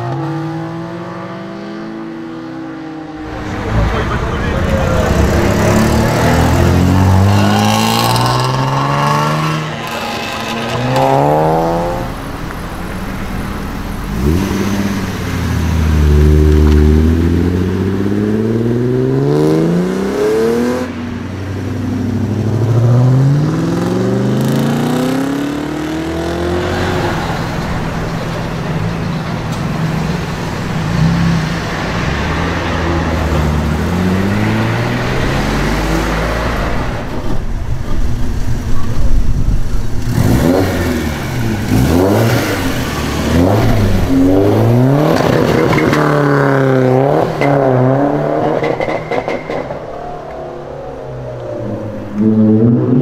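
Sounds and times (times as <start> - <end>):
car engines revving and accelerating: 0.0 - 53.0.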